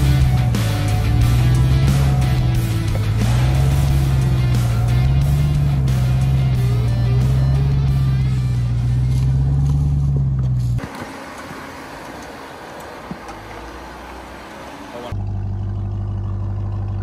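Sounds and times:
music: 0:00.0 - 0:10.8
truck engine rumbling: 0:00.0 - 0:17.0.

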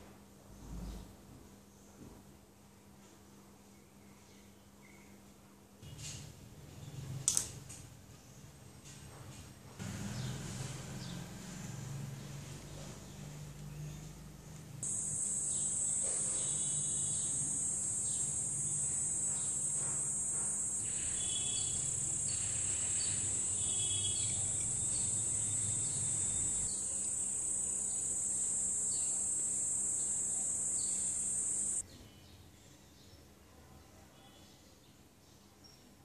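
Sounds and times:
insects trilling: 0:14.8 - 0:31.8.

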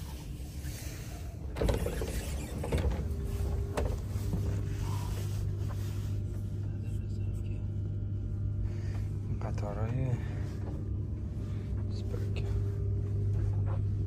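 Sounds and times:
door motor whine: 0:00.0 - 0:05.6
train carriage low hum: 0:00.0 - 0:14.0.

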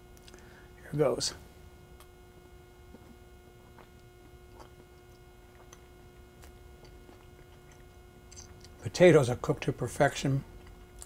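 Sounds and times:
faint electrical hum: 0:00.0 - 0:11.0
person chewing food: 0:02.8 - 0:08.8, 0:10.5 - 0:11.0.

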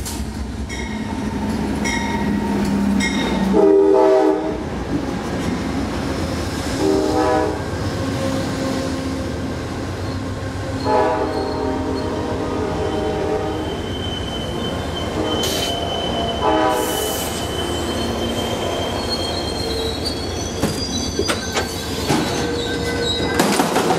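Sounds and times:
train horn: 0:03.4 - 0:04.7, 0:06.8 - 0:09.3, 0:10.7 - 0:13.8, 0:15.1 - 0:17.4
train wheels squealing: 0:09.9 - 0:23.7
wheels clacking over rail joints: 0:20.6 - 0:23.9.

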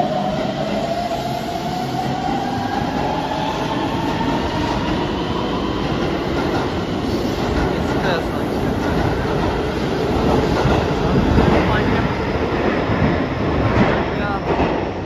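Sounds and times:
wheels rumbling on rail: 0:04.0 - 0:15.0.

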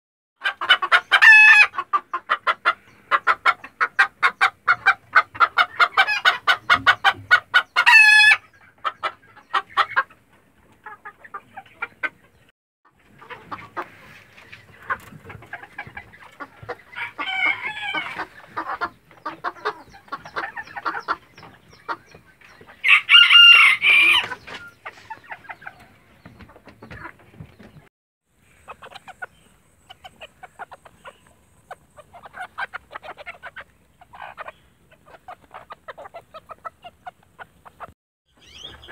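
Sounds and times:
chickens clucking: 0:00.4 - 0:38.9
rooster crowing: 0:17.0 - 0:18.1, 0:22.8 - 0:24.2.

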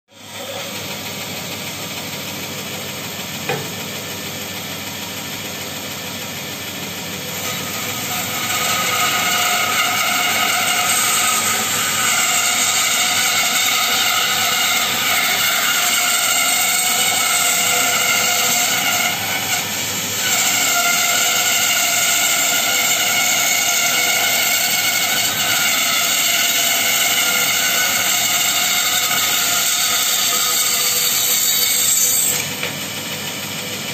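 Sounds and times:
bandsaw cutting wood whine: 0:00.2 - 0:33.9
bandsaw running: 0:00.2 - 0:33.9.

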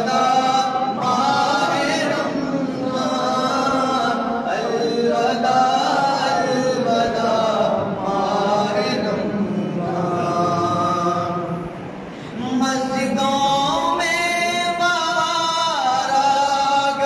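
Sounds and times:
men chanting: 0:00.0 - 0:11.7.

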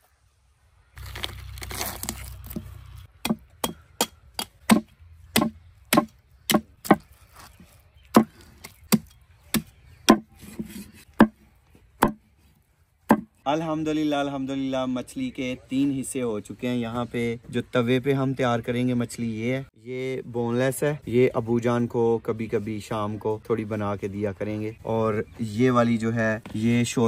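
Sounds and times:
cleaver chopping fish on wood: 0:03.2 - 0:07.0, 0:08.1 - 0:10.3, 0:12.0 - 0:12.2, 0:13.1 - 0:13.3
knife scraping and cutting: 0:10.3 - 0:11.2.

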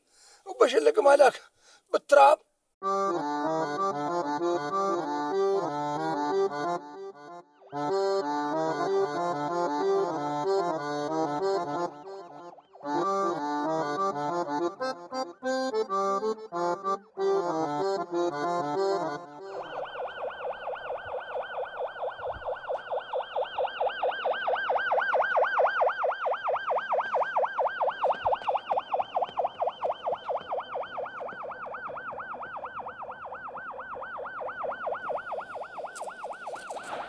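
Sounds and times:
police siren yelping: 0:19.4 - 0:37.0.

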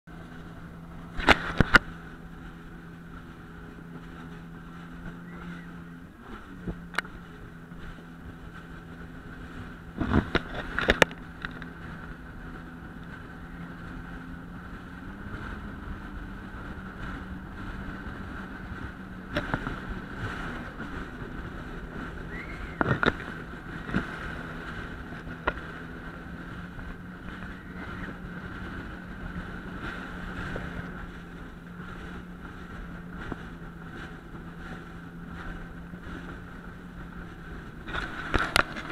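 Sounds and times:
jet ski engine drone: 0:00.1 - 0:38.9.

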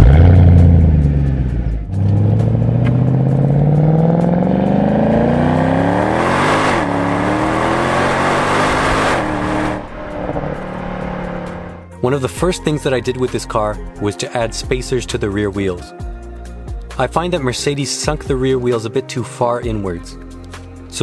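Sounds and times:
car engine revving: 0:00.0 - 0:11.8
car engine accelerating: 0:00.0 - 0:11.9.

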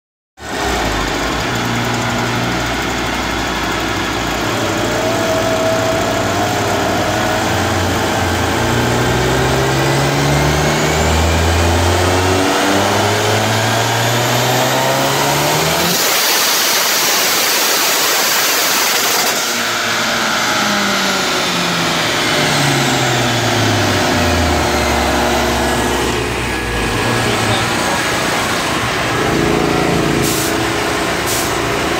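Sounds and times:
car engine revving on dyno: 0:00.4 - 0:31.9
loud rushing noise: 0:20.9 - 0:31.9.

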